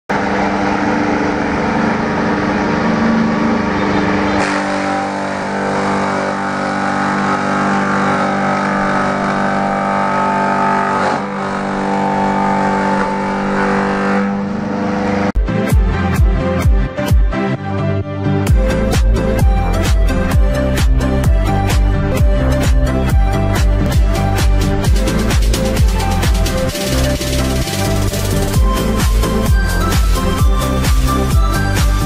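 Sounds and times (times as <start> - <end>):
shredder motor hum: 0.1 - 15.3.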